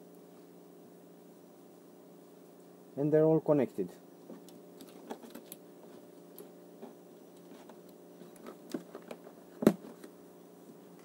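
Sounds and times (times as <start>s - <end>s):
faint hum: 0.0s - 11.0s
wires and plastic connectors rattling: 4.4s - 5.6s, 7.4s - 10.1s.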